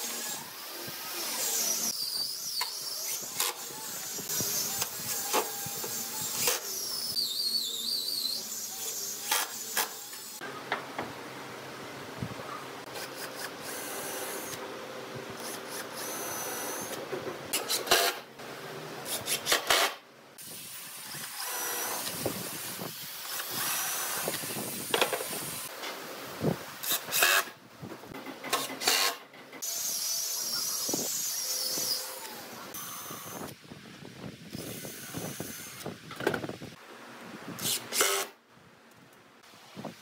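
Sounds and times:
power tool whining: 0.0s - 10.4s.

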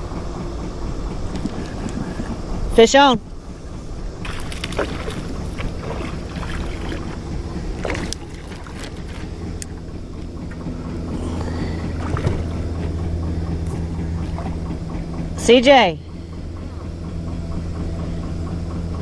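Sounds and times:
steady low hum: 0.0s - 19.0s
fish splashing: 4.2s - 13.0s.

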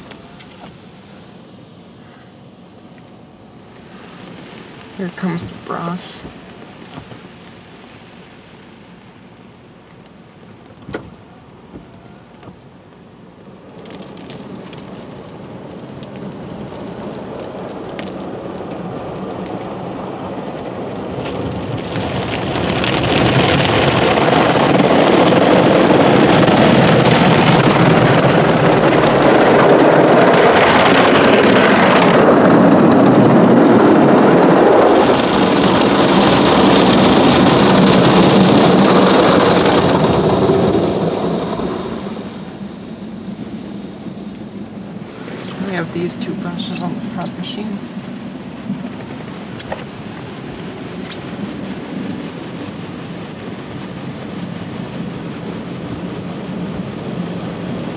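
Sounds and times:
car wash brushes and water spray: 0.0s - 57.9s.

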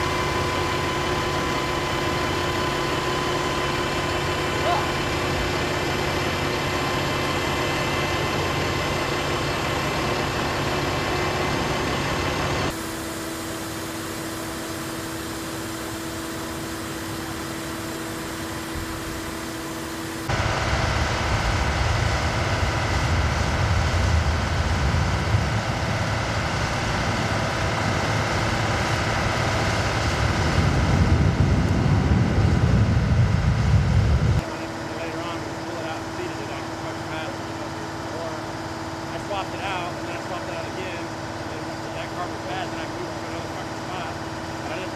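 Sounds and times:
heavy truck engines running: 0.0s - 44.9s
steady hum: 0.0s - 44.9s
loud low rumble: 20.3s - 37.8s.

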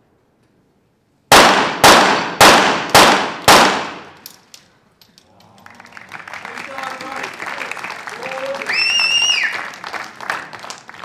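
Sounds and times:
pistol shots with echo: 1.3s - 4.2s.

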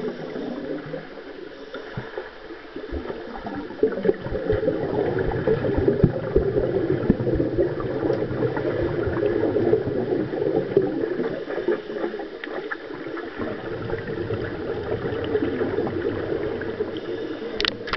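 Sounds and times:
bubbling: 0.0s - 17.9s
underwater churning water: 0.0s - 17.9s.

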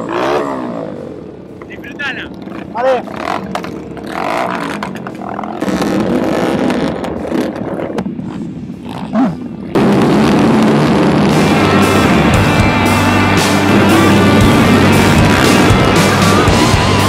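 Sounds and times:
motorcycle engines revving: 0.0s - 17.0s.

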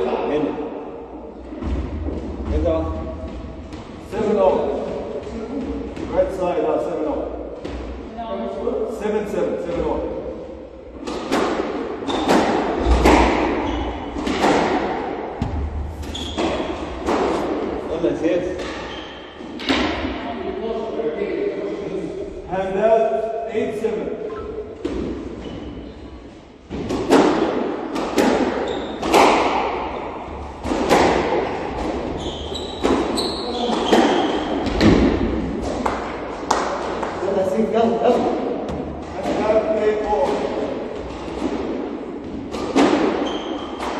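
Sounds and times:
squash ball hitting rackets and walls: 1.3s - 8.1s, 9.5s - 20.2s, 24.6s - 37.4s, 38.0s - 43.9s
squash ball knocks: 11.1s - 17.6s
shoe squeaks on wooden floor: 16.1s - 16.8s, 32.2s - 34.5s, 43.2s - 43.8s.

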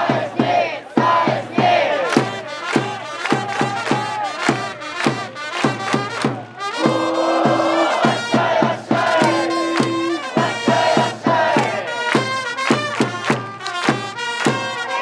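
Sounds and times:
crowd singing along: 0.0s - 2.3s, 6.8s - 12.2s, 14.8s - 15.0s
quick drumbeat: 0.0s - 14.8s
trumpets playing cheer song: 1.2s - 15.0s.

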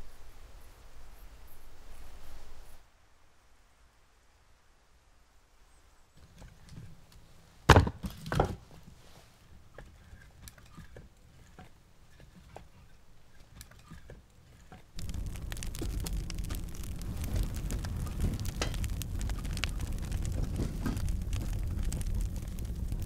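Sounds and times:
dense crackling rush: 14.6s - 23.0s
heavy thuds: 15.0s - 23.0s.

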